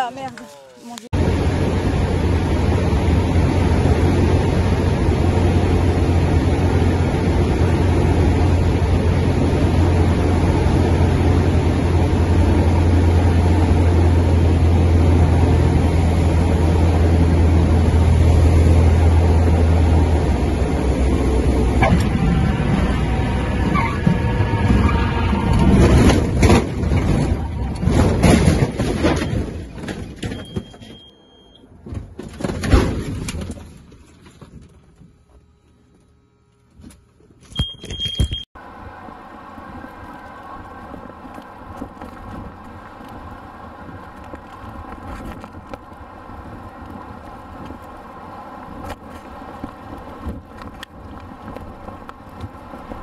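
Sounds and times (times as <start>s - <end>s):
aircraft cabin rumbling and rattling: 0.0s - 31.1s, 31.7s - 35.9s
jet engines droning: 1.2s - 26.5s
wind buffeting microphone: 38.7s - 53.0s.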